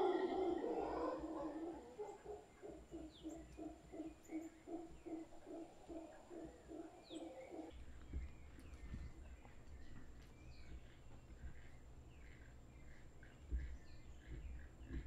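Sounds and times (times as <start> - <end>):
howler monkeys grunting: 0.0 - 7.7
bird chirps: 0.0 - 15.0.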